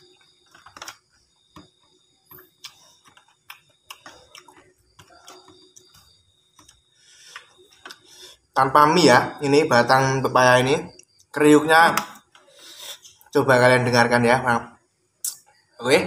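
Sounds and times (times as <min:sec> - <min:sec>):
person chewing and slurping noodles: 0:02.6 - 0:08.4.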